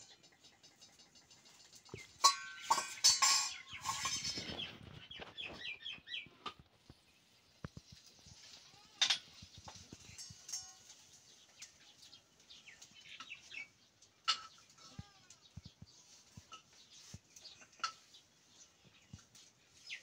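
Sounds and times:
metal ladle clinking against pot: 0:00.1 - 0:04.5.

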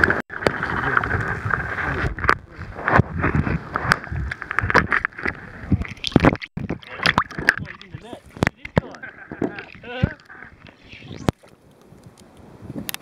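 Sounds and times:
dull underwater rumble: 0:00.0 - 0:11.4.

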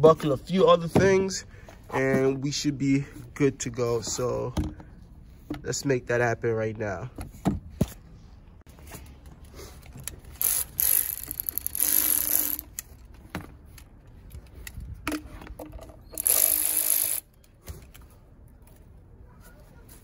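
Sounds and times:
electric ratchet spinning: 0:10.3 - 0:12.8, 0:16.1 - 0:17.3.

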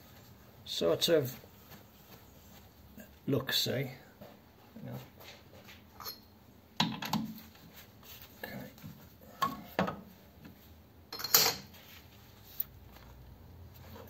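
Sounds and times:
metal clanks and clinks: 0:06.0 - 0:06.3, 0:11.1 - 0:11.7.

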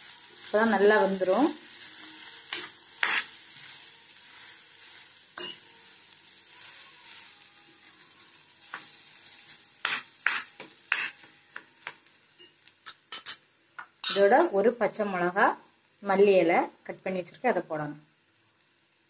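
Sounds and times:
potato filling sizzling in pan: 0:00.0 - 0:19.0
steel spoon scraping pan: 0:01.7 - 0:03.9, 0:05.4 - 0:05.7, 0:09.8 - 0:11.3.

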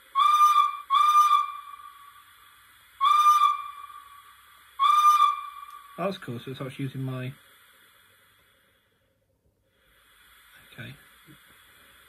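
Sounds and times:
model locomotive steam whistle toots: 0:00.0 - 0:06.7.

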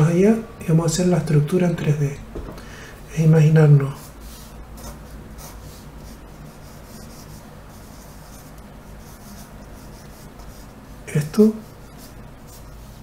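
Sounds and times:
low steady hum: 0:00.0 - 0:13.0
pencil scratching on paper: 0:03.9 - 0:13.0.

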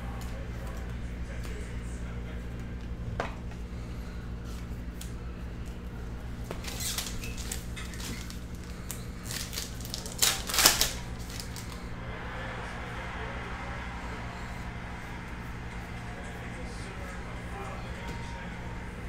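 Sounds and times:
trading cards handled: 0:06.4 - 0:11.9
foil pack crinkling and tearing: 0:06.6 - 0:11.8
low hum: 0:10.9 - 0:19.0.

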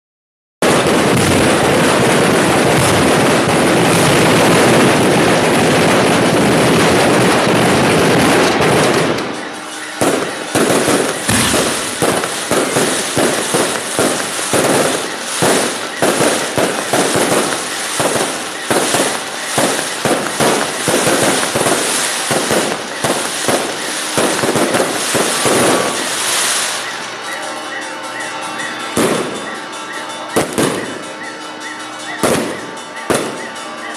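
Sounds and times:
firecrackers crackling and banging: 0:00.6 - 0:33.9.

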